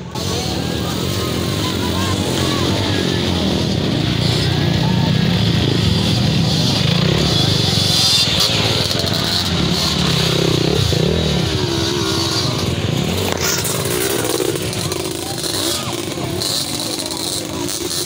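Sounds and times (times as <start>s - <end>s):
dirt bike engines revving: 0.0s - 18.0s.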